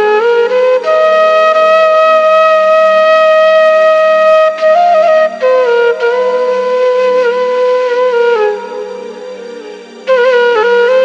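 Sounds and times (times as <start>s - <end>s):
wind instrument long notes: 0.0s - 11.0s
steady drone: 4.7s - 11.0s.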